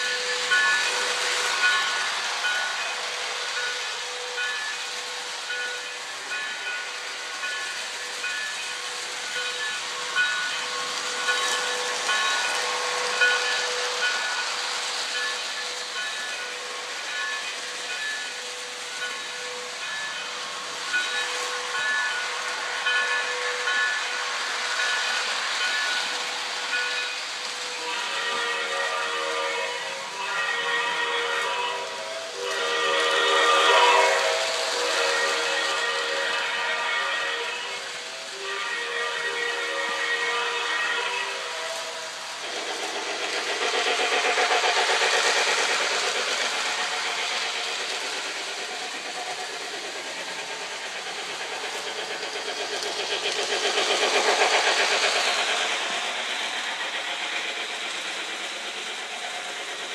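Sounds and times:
toy train steam hiss: 0.0s - 59.9s
train whistle: 3.2s - 48.8s.

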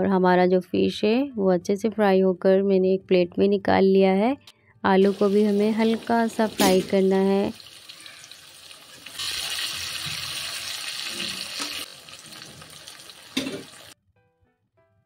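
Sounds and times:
potato slices sizzling in oil: 5.0s - 14.0s.

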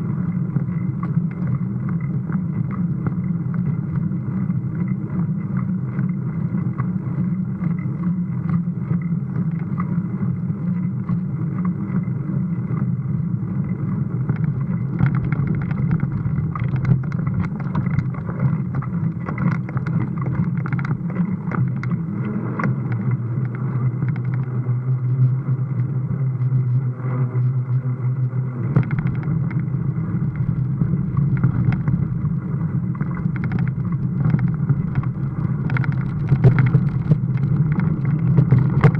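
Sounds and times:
low rumble of mountain bike: 0.0s - 38.9s
bike rattles and knocks: 14.2s - 22.0s, 28.7s - 38.9s.

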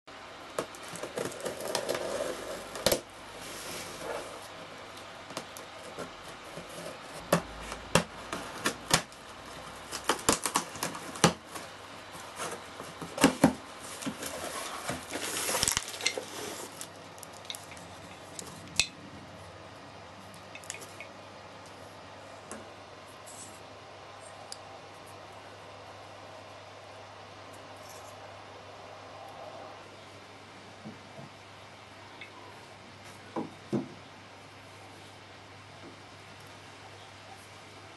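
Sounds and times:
cardboard rustling and scraping: 0.6s - 4.7s, 5.4s - 17.0s
packing tape peeling and tearing: 9.8s - 11.7s, 13.2s - 17.6s.

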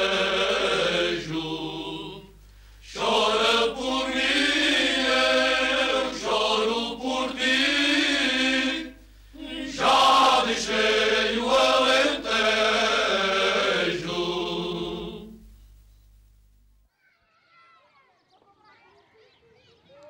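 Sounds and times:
men singing a cappella: 0.0s - 15.4s.

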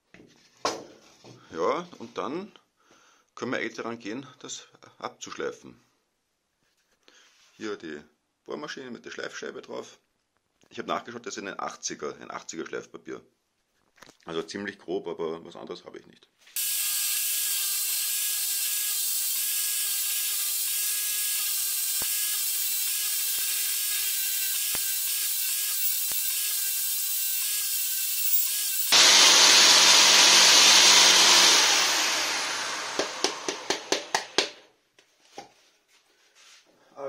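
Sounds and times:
sanding disc on wood: 16.6s - 34.4s
electric drill whining: 16.6s - 34.6s.

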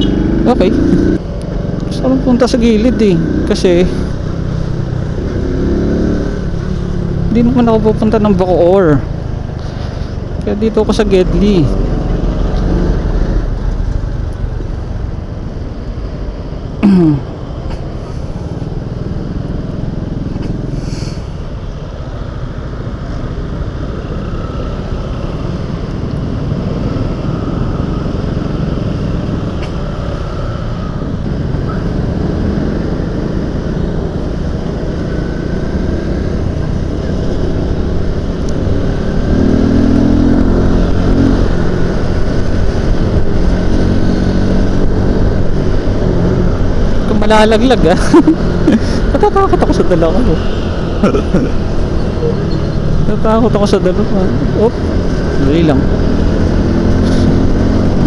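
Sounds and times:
motorcycle engine running: 0.0s - 14.8s
road noise: 0.0s - 58.0s.

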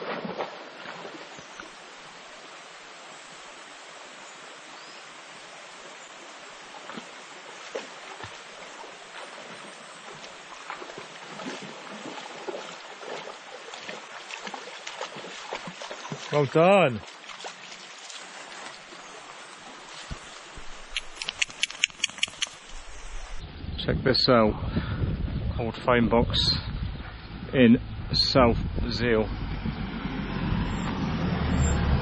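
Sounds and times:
dog splashing through water: 0.0s - 1.7s, 6.8s - 23.4s
river running over stones: 0.0s - 23.4s.

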